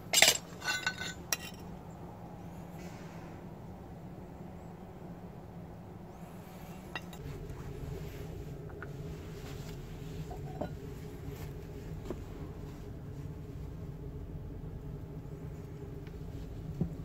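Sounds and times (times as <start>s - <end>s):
metal tools clinking: 0.0s - 1.6s, 6.9s - 7.2s
low workshop hum: 0.0s - 17.0s.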